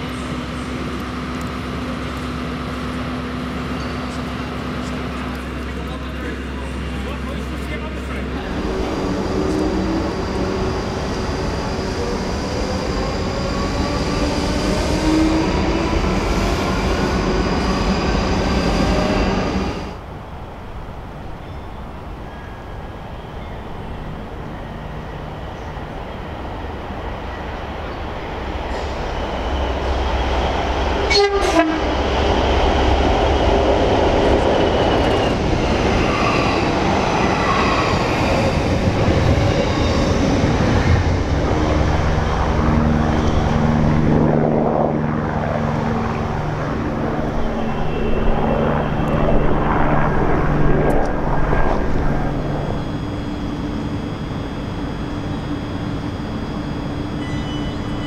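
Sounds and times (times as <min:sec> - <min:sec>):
diesel engine drone: 0:00.0 - 0:20.2, 0:40.0 - 0:58.0
train horn: 0:31.1 - 0:32.0, 0:47.4 - 0:49.5.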